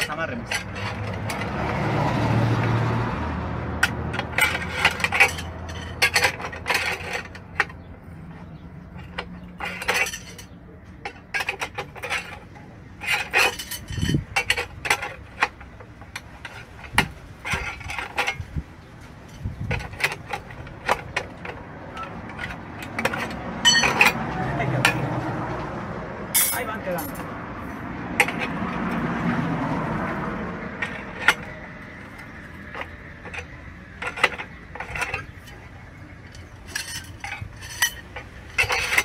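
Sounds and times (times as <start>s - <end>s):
metal rod scraping: 0.0s - 2.8s, 3.7s - 25.3s, 26.4s - 39.0s
metallic clicks and clanks: 0.0s - 2.8s, 3.7s - 25.7s, 28.1s - 39.0s.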